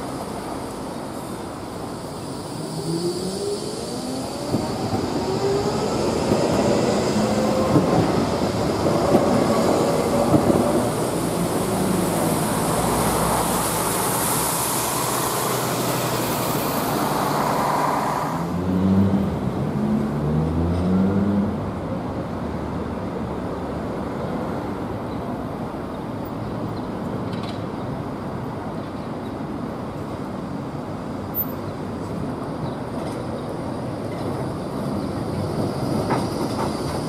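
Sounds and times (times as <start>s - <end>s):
hiss of passing vehicles: 0.0s - 33.0s.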